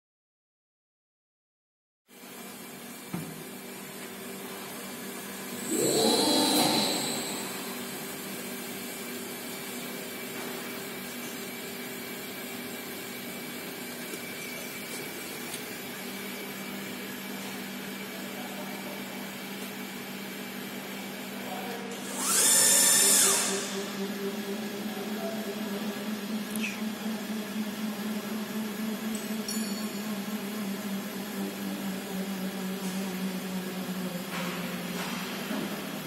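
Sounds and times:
hydraulic press humming: 5.3 - 8.5, 22.0 - 36.0
drive whine spinning up: 5.4 - 8.5.

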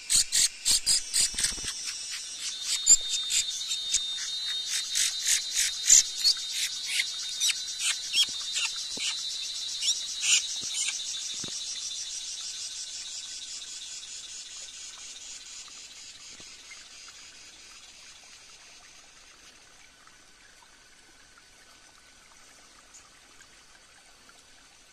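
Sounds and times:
forest insects buzzing: 0.0 - 18.9.

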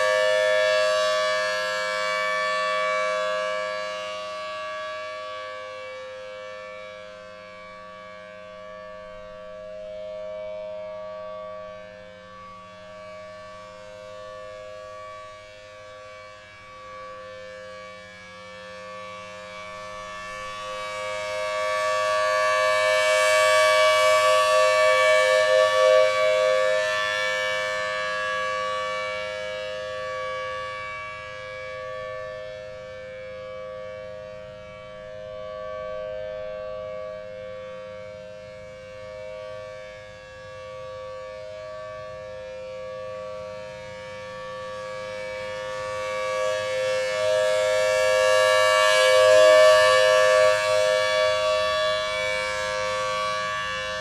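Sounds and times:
rotating siren two-note tone: 21.0 - 28.7.

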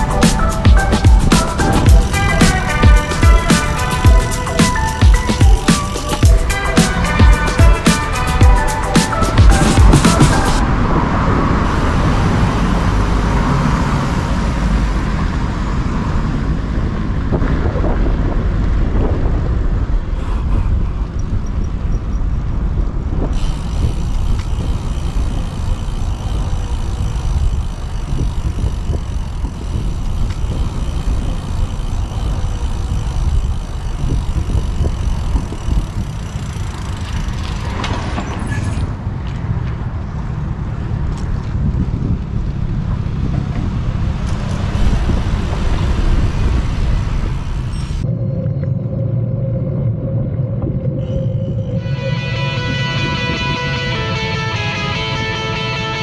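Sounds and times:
passing motor traffic: 0.0 - 48.2, 51.1 - 56.0
bicycle tyre road noise: 0.0 - 56.0
wind on microphone: 0.0 - 56.0.

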